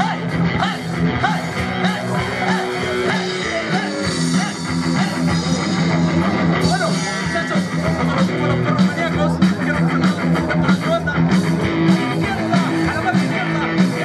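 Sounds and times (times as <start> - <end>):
drum kit: 0.0 - 14.0
electric guitars: 0.0 - 14.0.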